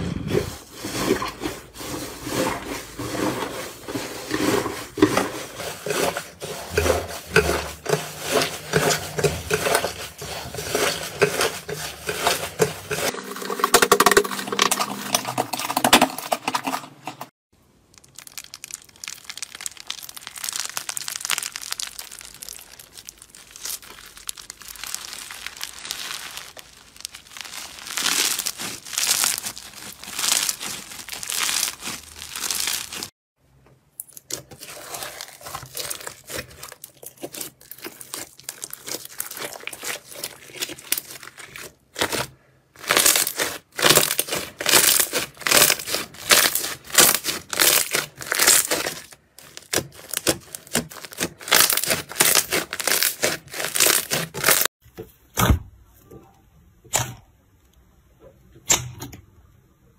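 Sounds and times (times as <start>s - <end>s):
bead-filled slime crackling: 17.6s - 33.2s, 34.0s - 54.8s.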